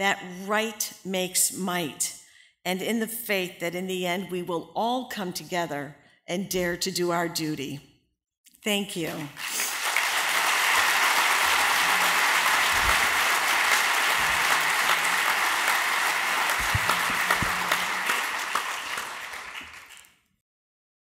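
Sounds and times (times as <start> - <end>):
audience applause: 9.4 - 20.1.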